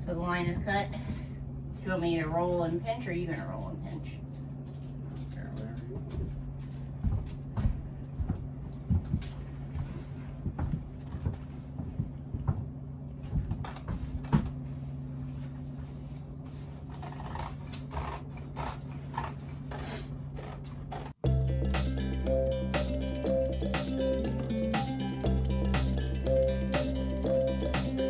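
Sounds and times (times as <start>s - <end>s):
low hum: 20.4s - 28.0s.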